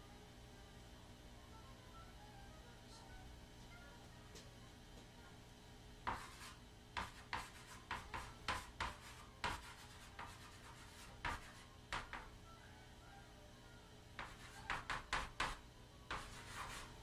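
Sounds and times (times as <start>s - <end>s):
chalk writing on chalkboard: 6.0s - 12.3s, 14.2s - 17.0s.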